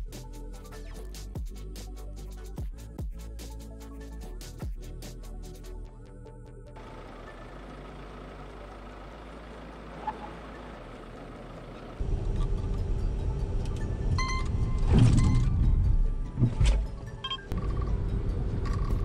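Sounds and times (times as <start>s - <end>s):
road and wind noise in car: 6.8s - 19.0s
electronic warning beeps: 14.2s - 15.5s.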